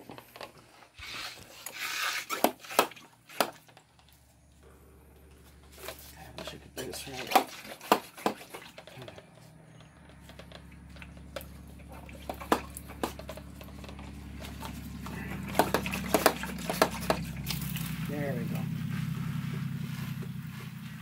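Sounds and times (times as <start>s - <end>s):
low hum: 3.9s - 6.8s, 8.9s - 21.0s.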